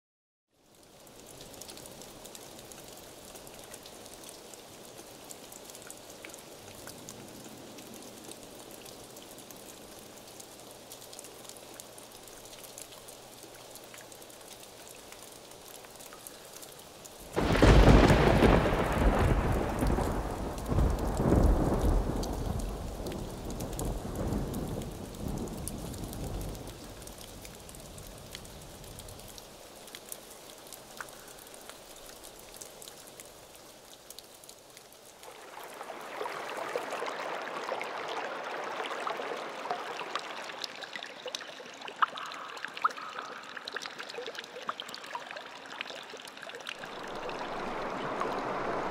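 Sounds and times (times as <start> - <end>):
steady rain: 0.5 - 48.9
thunderclap and rumbling: 17.4 - 26.8, 46.8 - 48.9.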